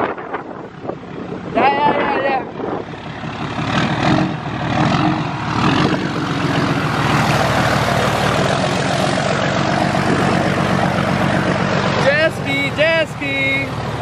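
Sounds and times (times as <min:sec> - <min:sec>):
truck engine droning: 0:00.0 - 0:14.0
water rushing and splashing: 0:03.1 - 0:14.0.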